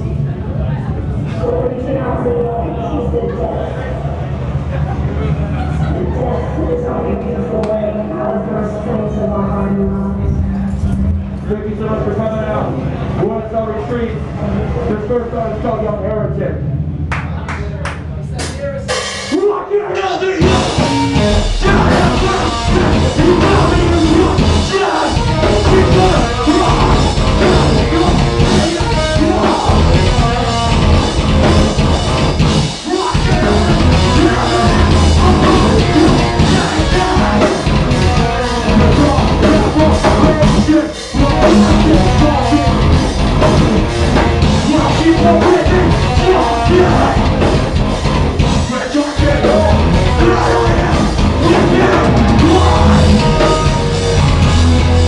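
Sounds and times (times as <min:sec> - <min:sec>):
live metal band playing: 0:00.0 - 0:15.0, 0:18.4 - 0:55.0
vocals: 0:00.0 - 0:16.7, 0:17.3 - 0:55.0.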